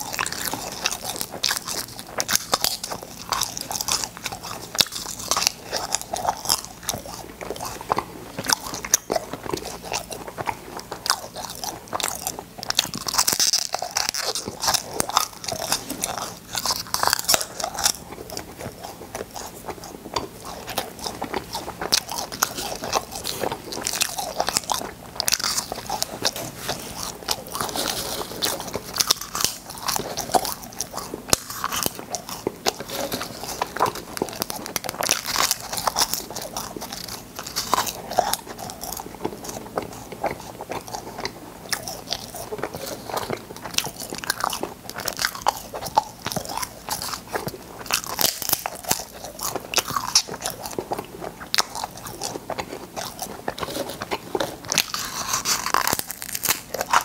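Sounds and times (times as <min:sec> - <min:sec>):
candies crunching between teeth: 0:00.0 - 0:57.0.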